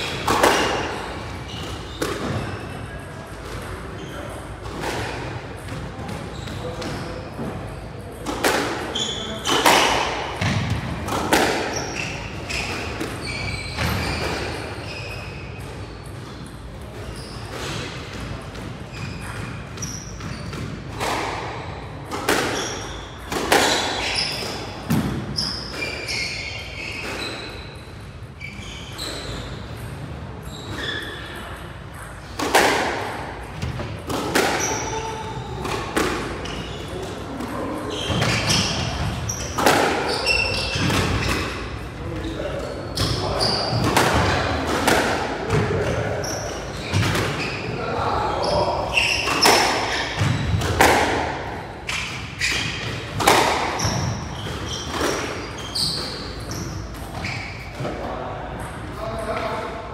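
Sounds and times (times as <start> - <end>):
squash ball hits: 0.0 - 1.0, 4.6 - 14.7, 17.4 - 26.0, 32.0 - 36.7, 37.3 - 41.6, 43.0 - 46.2, 48.8 - 57.2
sneaker squeaks on wooden floor: 0.0 - 20.8, 21.8 - 32.7, 33.5 - 58.0.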